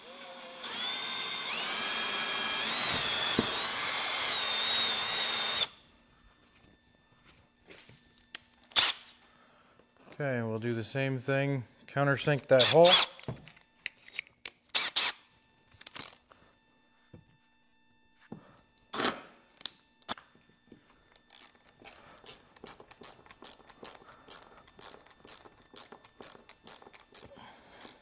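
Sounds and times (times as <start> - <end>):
ratcheting screwdriver clicking: 21.2 - 28.0.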